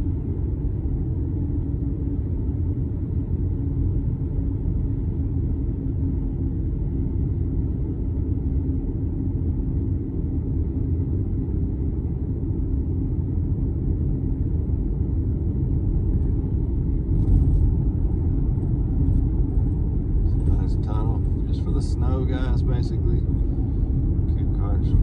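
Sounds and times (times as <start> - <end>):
car road rumble from inside: 12.8 - 25.0.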